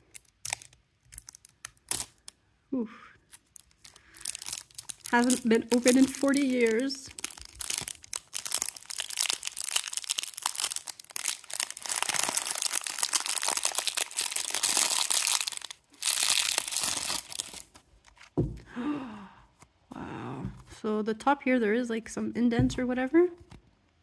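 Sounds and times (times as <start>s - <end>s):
plastic wrap crinkling and tearing: 0.0s - 2.4s, 3.2s - 18.4s.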